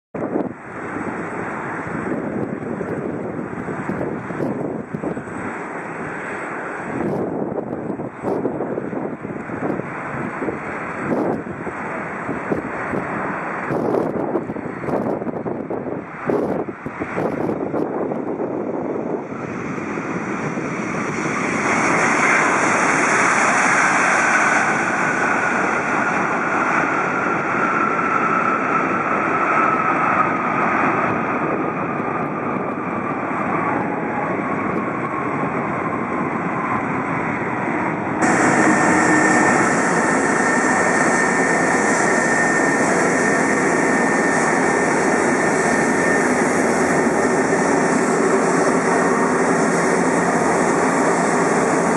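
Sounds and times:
jet engine whine: 0.2 - 51.9
jet engines idling with high whine: 0.2 - 51.9
jet engines reverse thrust roar: 0.2 - 51.9.

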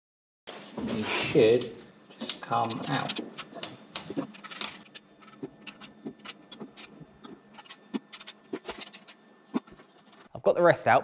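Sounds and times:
metal clicks and scrapes: 2.2 - 10.3.

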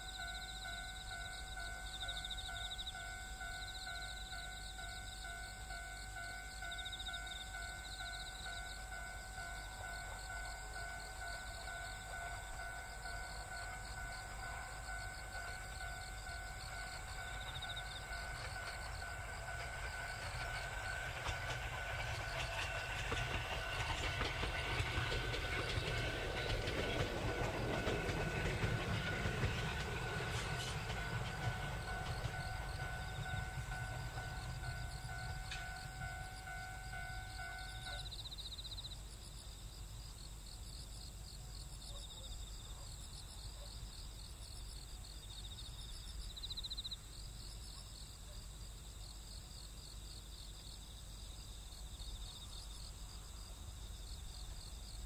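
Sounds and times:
electric train passing: 0.0 - 39.5
wheels clicking over rail joints: 13.4 - 38.0.

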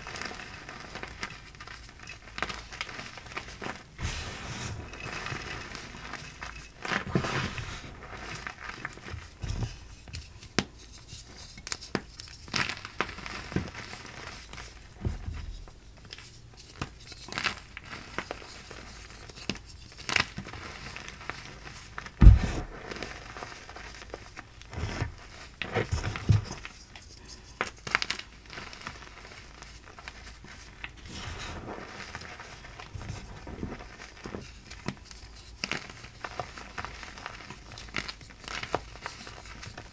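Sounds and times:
chalk crunching and crackling: 0.0 - 39.9
loud thud: 22.2 - 22.7.

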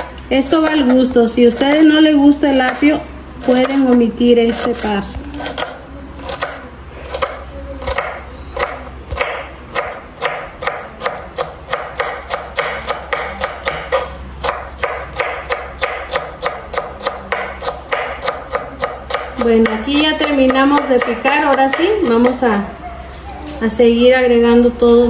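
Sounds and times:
knife chopping on wooden board: 2.5 - 22.4.

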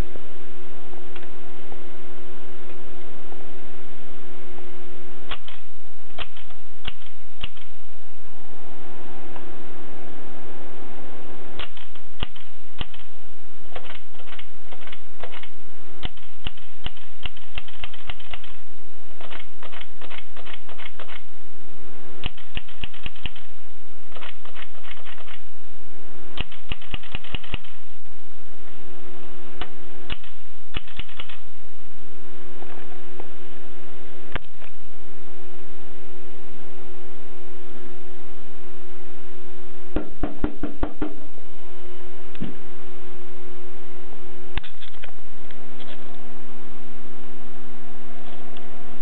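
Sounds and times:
steady hum: 0.0 - 49.0
typewriter clacking: 5.3 - 5.6, 6.2 - 7.7, 11.6 - 13.1, 13.8 - 18.6, 19.2 - 21.2, 22.2 - 23.5, 24.1 - 25.4, 26.4 - 27.8, 30.1 - 31.4.

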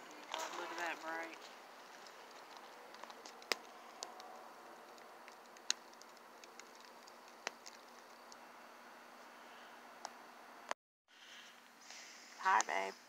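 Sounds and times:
fire crackling with pops: 0.0 - 8.5.

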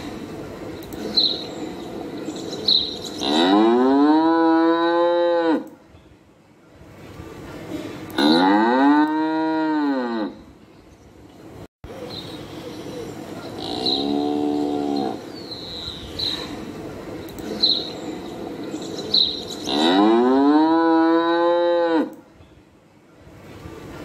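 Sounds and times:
cattle mooing: 3.2 - 5.7, 8.2 - 10.4, 13.6 - 15.2, 19.7 - 22.1.

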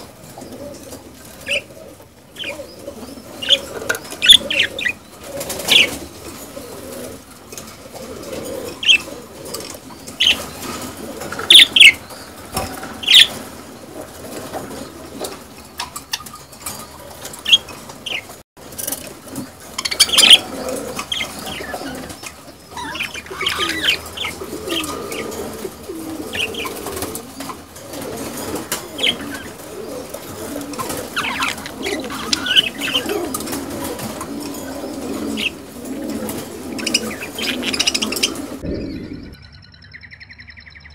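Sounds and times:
budgerigars chattering and warbling: 1.4 - 6.3, 8.6 - 18.4, 19.4 - 27.6, 28.2 - 40.9
sharp bird chirps: 37.8 - 40.9.

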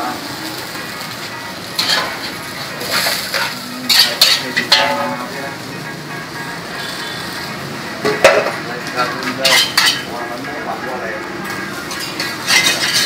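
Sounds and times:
food sizzling in hot oil: 0.0 - 13.0
metal spatula scraping wok: 1.7 - 5.2, 9.2 - 10.1, 11.4 - 13.0.

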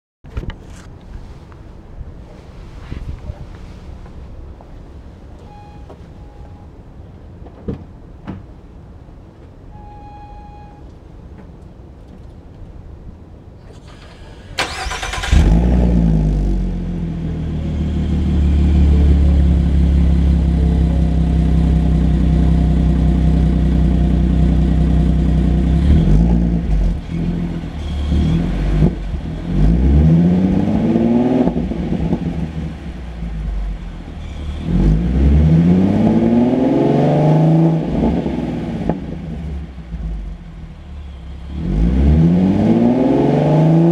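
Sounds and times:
car engine idling: 13.2 - 29.9, 31.5 - 35.1, 38.3 - 41.7
car engine revving: 13.8 - 43.9.

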